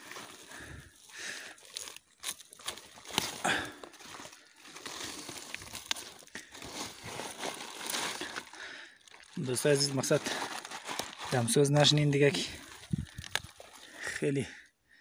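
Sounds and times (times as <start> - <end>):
leaves rustling and crackling: 0.0 - 14.1
stalks snapping: 1.7 - 3.4.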